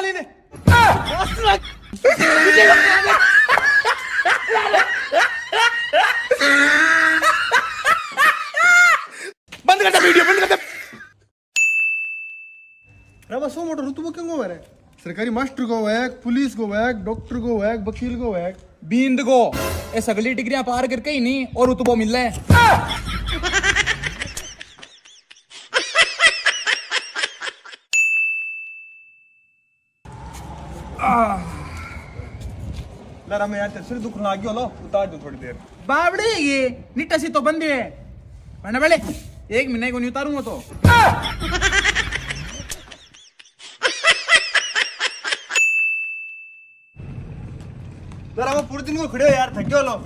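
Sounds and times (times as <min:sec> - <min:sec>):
person laughing: 0:00.8 - 0:11.2, 0:22.6 - 0:27.8, 0:40.9 - 0:45.6
bright ding: 0:11.6 - 0:13.2, 0:28.0 - 0:29.6, 0:45.6 - 0:47.0.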